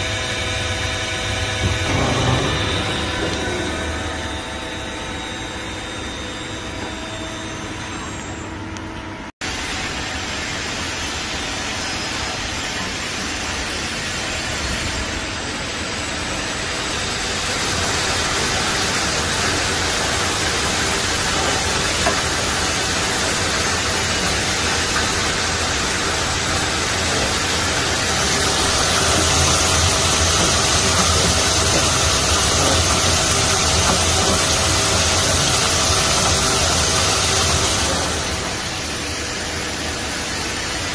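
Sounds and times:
lathe spindle running: 0.0 - 8.8, 16.4 - 40.3
coolant spraying and splashing: 16.6 - 40.9.

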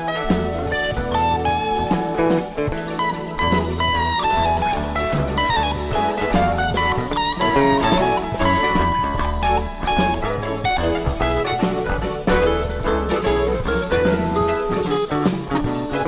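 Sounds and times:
bass guitar: 0.0 - 16.0
drums: 0.0 - 16.0
electric guitar lead: 0.0 - 16.0.

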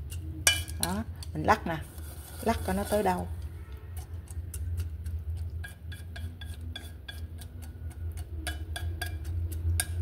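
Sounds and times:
steady low hum: 0.0 - 10.0
chopsticks tapping against pot: 4.0 - 10.0.

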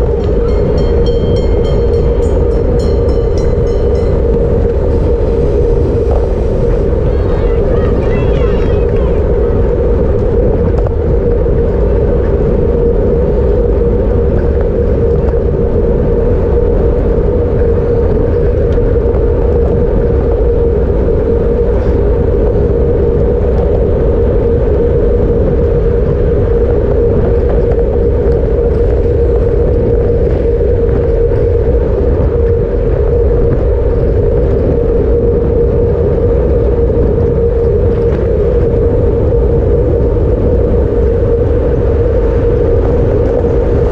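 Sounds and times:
tyre hum: 0.0 - 9.5
wind rumble: 0.0 - 43.9.

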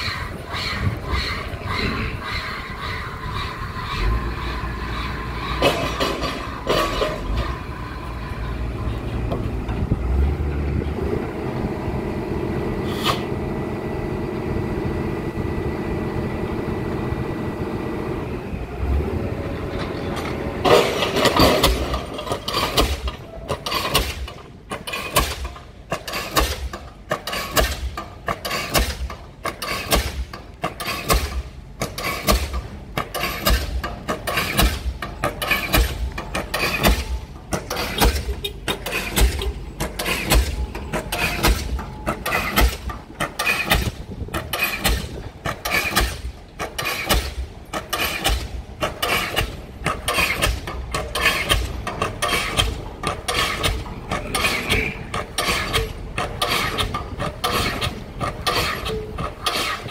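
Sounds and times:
rig engine running: 0.0 - 59.9
pile hammer blows: 3.8 - 8.4, 19.8 - 59.9.

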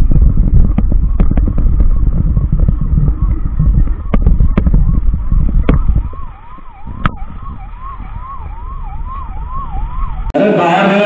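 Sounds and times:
electronic siren wailing: 0.0 - 11.0
road rumble: 0.0 - 11.0
man speaking: 10.4 - 11.0.

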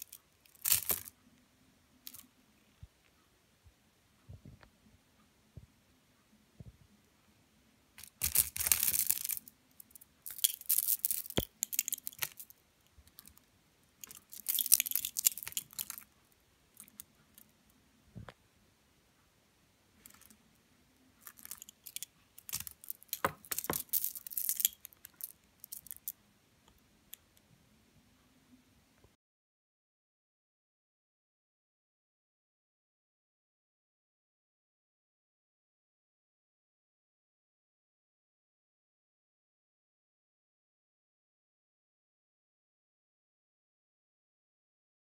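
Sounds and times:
stone beads clicking and rattling: 0.0 - 1.1, 2.0 - 2.2, 8.0 - 13.4, 14.0 - 16.1, 16.8 - 17.1, 20.0 - 20.4, 21.2 - 26.2.

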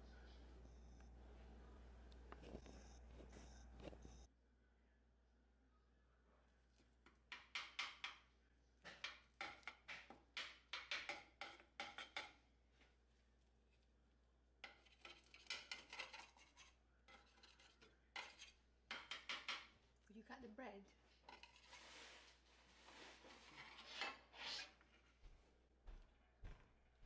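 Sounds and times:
metal spoon scraping glass dish: 14.6 - 19.2, 21.3 - 21.9.

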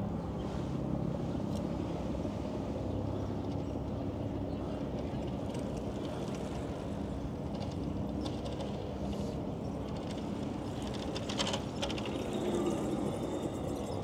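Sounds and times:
bicycle tyre and wind rumble: 0.0 - 14.0.

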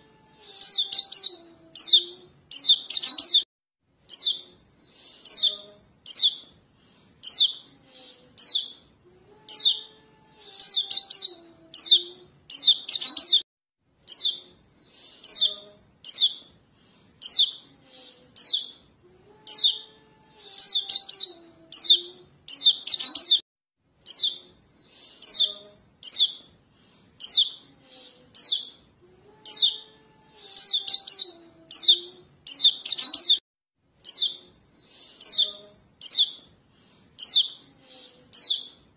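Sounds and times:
high bird chirps: 0.4 - 3.5, 4.1 - 6.5, 7.2 - 8.9, 9.5 - 13.4, 14.0 - 16.5, 17.2 - 18.9, 19.5 - 23.4, 24.0 - 26.5, 27.2 - 28.9, 29.5 - 33.4, 34.0 - 36.5, 37.2 - 38.8.

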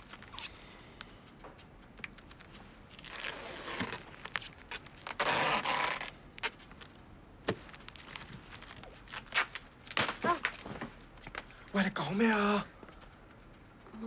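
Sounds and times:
scattered clicks: 0.0 - 3.2, 11.2 - 14.0
plastic packages crinkling: 3.0 - 10.6.

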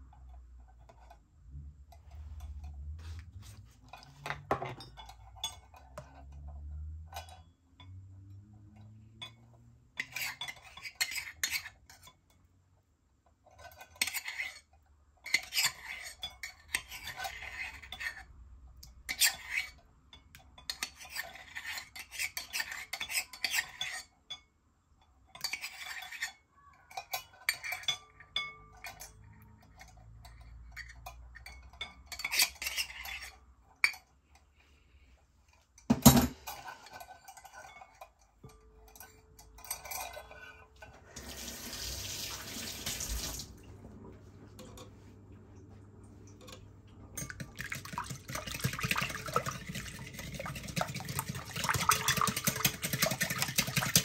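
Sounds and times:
utensil scraping in mixing bowl: 10.0 - 12.1, 13.6 - 14.7, 15.3 - 18.3, 19.1 - 19.8, 20.7 - 24.1, 32.1 - 33.4, 47.2 - 54.0.

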